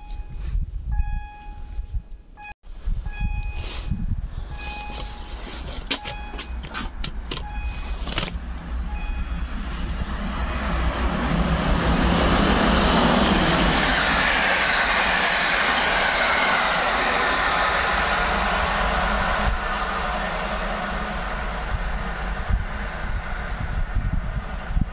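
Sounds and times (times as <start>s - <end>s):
short beeps: 0.0s - 6.7s, 7.4s - 8.0s, 8.9s - 9.5s
train wheels rumbling on rails: 3.6s - 24.9s.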